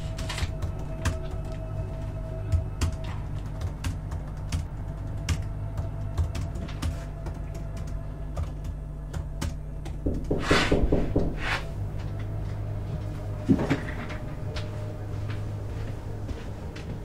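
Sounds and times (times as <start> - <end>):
laptop keyboard typing: 0.0 - 1.8, 2.5 - 10.3
steady low hum: 0.0 - 17.0.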